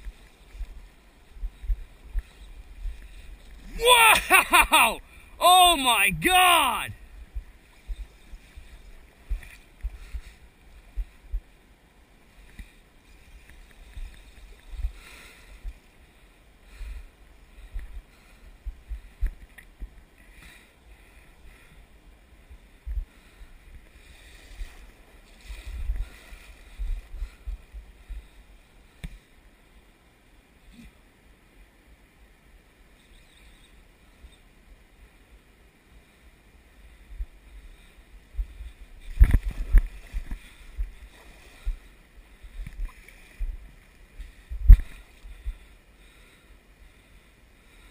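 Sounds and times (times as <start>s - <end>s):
river water sloshing and splashing: 7.1s - 21.5s, 23.6s - 29.4s, 38.7s - 46.2s.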